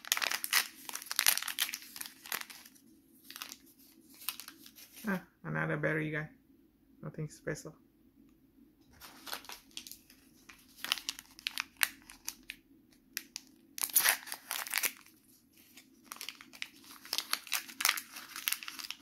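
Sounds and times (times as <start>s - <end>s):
plastic packet crinkling: 0.0s - 5.1s, 9.0s - 19.0s.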